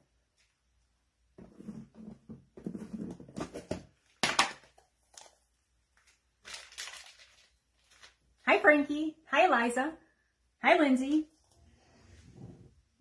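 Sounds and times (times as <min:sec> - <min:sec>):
plastic rustling and crinkling: 0:05.0 - 0:08.4.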